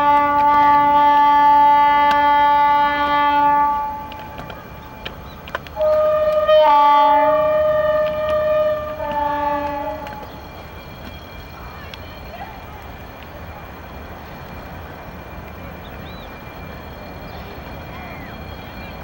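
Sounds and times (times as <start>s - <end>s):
locomotive air horn blasts: 0.0s - 4.5s, 5.8s - 10.4s.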